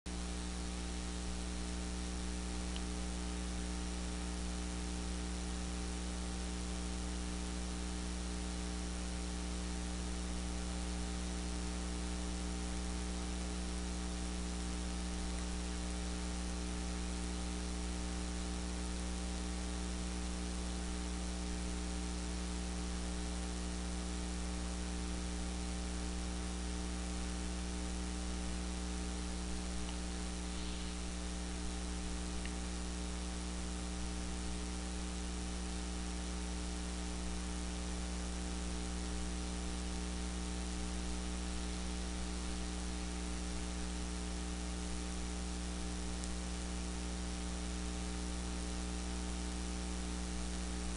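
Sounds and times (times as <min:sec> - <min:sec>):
electrical hum: 0:00.1 - 0:50.9
constant hiss: 0:19.4 - 0:46.8.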